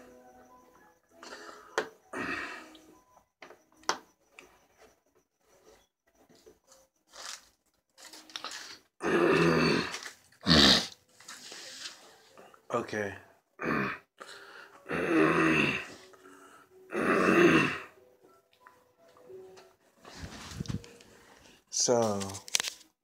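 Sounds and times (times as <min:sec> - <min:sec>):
phone handling clicks and rustles: 0:22.0 - 0:22.9.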